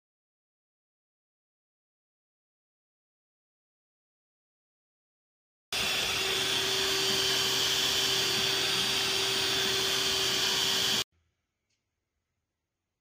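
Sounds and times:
stand mixer motor whining: 0:05.8 - 0:11.0.

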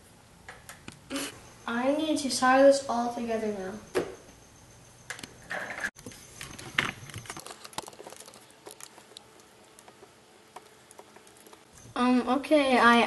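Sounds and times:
jumper wires clicking and rustling: 0:05.1 - 0:12.0.

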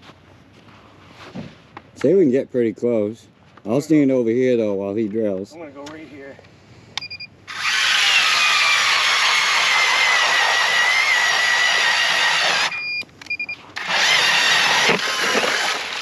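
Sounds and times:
ice auger whining: 0:07.5 - 0:16.0.

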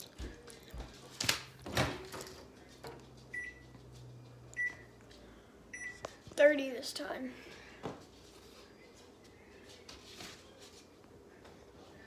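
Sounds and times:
keypad beeps: 0:03.4 - 0:03.6, 0:04.6 - 0:04.8, 0:05.7 - 0:06.0.

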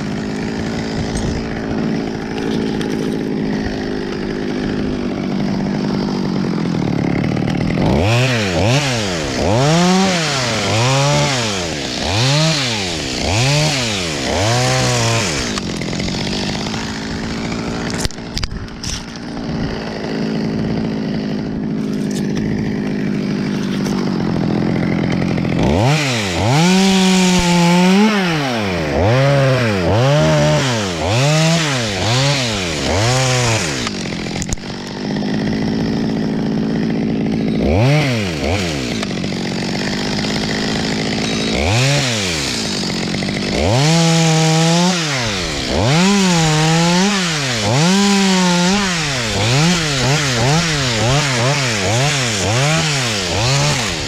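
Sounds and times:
chainsaw revving and idling: 0:00.0 - 0:54.0.

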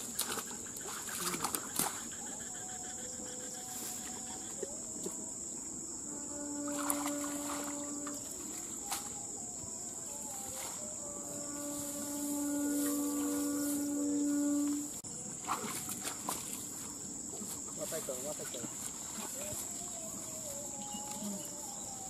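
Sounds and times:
water splashing and sloshing: 0:00.0 - 0:02.2, 0:06.5 - 0:09.3, 0:15.0 - 0:20.2
insects chirring: 0:00.0 - 0:22.0
steady low tone: 0:03.0 - 0:15.2.

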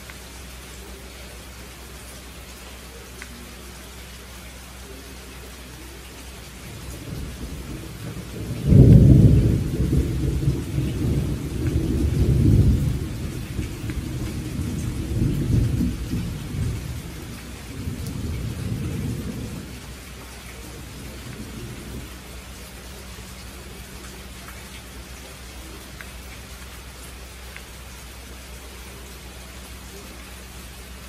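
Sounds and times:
steady rain: 0:00.0 - 0:31.0
thunder rolling: 0:06.7 - 0:22.2.

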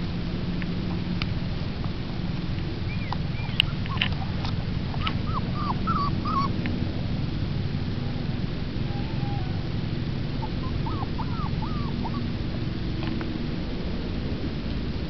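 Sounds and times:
steady low rumble: 0:00.0 - 0:15.0
puppies whimpering and yipping: 0:02.9 - 0:06.6, 0:08.8 - 0:09.7, 0:10.3 - 0:12.4.

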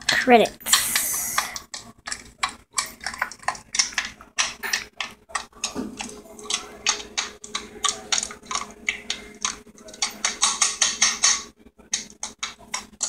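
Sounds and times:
faint hum: 0:05.2 - 0:13.0.

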